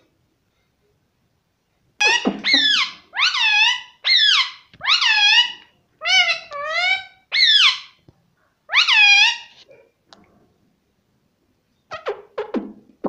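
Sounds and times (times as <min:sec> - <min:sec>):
parakeet calling loudly: 0:02.0 - 0:08.0, 0:08.7 - 0:09.6.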